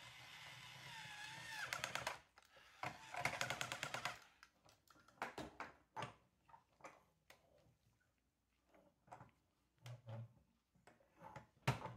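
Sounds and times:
toy drill whirring: 0:00.0 - 0:04.4.

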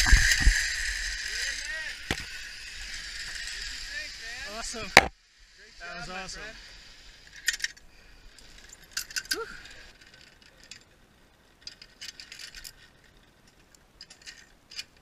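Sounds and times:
carabiners clinking: 0:07.2 - 0:15.0.

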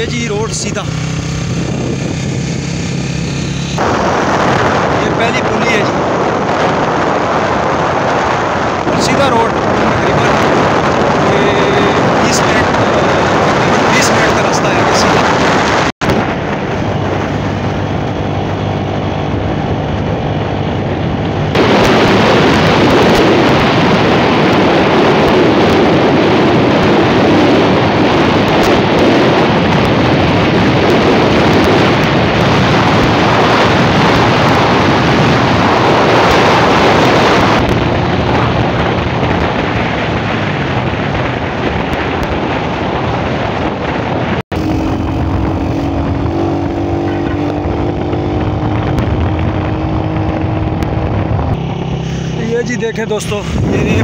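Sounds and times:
motorcycle engine running: 0:00.0 - 0:54.0
wind rushing over microphone: 0:00.0 - 0:54.0.

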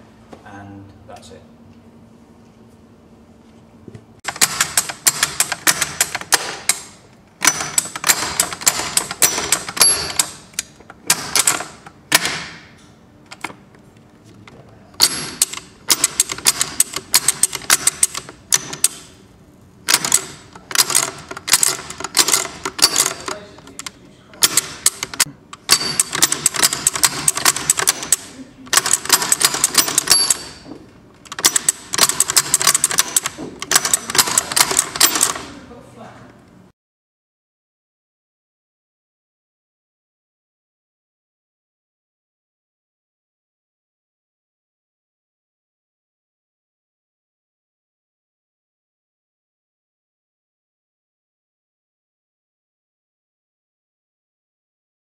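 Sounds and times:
gearbox metallic clicking and ratcheting: 0:15.0 - 0:19.0, 0:19.9 - 0:30.6, 0:31.2 - 0:35.5.

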